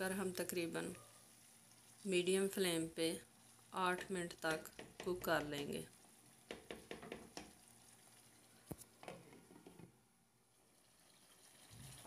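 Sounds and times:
spatula stirring curry in pan: 3.2 - 8.2.

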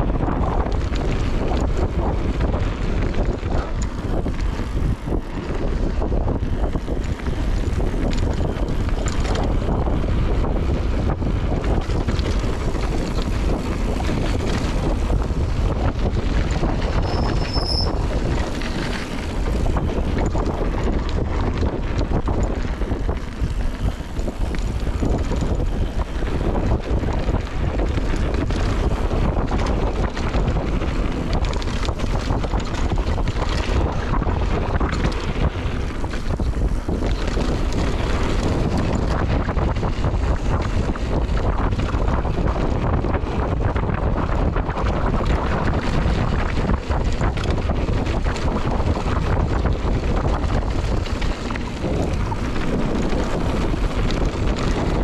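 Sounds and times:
bike rolling and rattling on dirt: 0.0 - 55.0
wind buffeting microphone: 0.0 - 55.0
high squeak: 17.0 - 18.0.

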